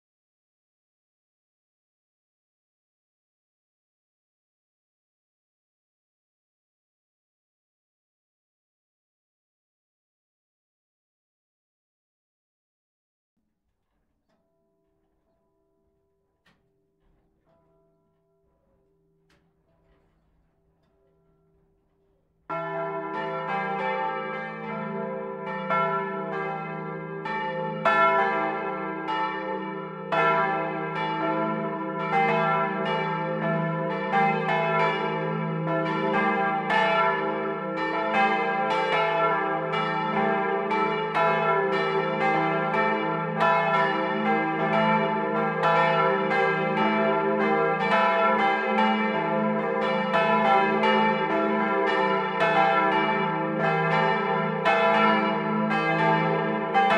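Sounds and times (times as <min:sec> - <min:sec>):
church bells ringing: 0:22.5 - 0:56.9.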